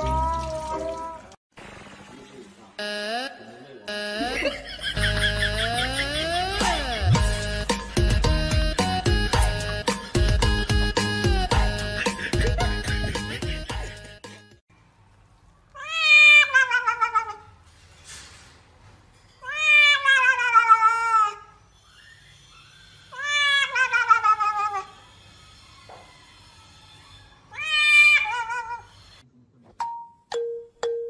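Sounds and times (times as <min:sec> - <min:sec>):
cat yowling: 0:00.0 - 0:01.3, 0:15.7 - 0:17.5, 0:19.4 - 0:21.6, 0:23.1 - 0:25.0, 0:25.6 - 0:28.9.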